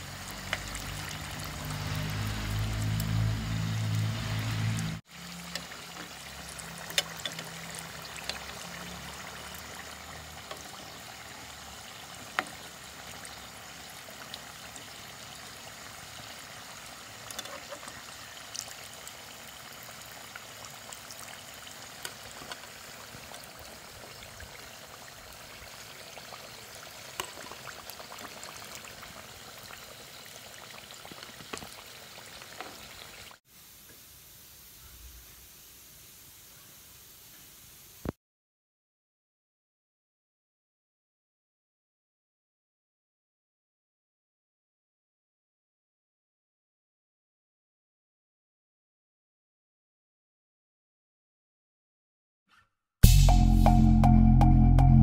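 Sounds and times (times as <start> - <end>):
oil popping and crackling: 0.0 - 34.0
food deep-frying in hot oil: 0.0 - 38.2.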